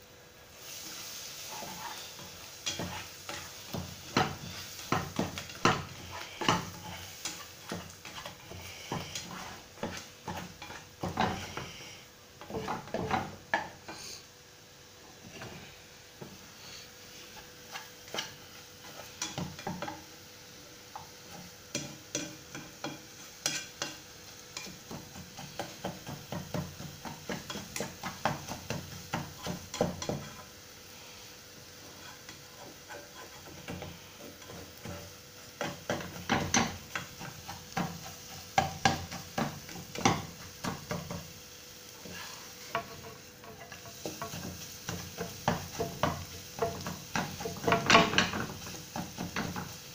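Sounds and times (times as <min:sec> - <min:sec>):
light sizzle of frying: 0:00.0 - 0:49.9
spatula scraping eggs in pot: 0:00.6 - 0:13.3, 0:16.7 - 0:20.1, 0:21.2 - 0:24.0, 0:31.8 - 0:41.2, 0:42.0 - 0:49.8.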